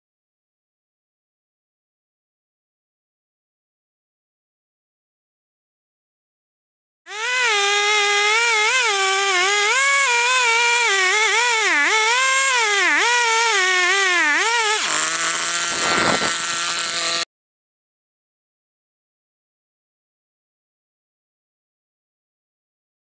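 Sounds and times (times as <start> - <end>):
chainsaw cutting through log: 7.1 - 17.3.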